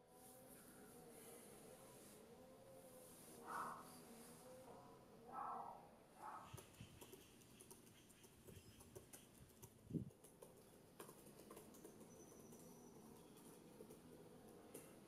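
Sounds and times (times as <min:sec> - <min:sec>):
laptop keyboard typing clicks: 0:06.5 - 0:15.0.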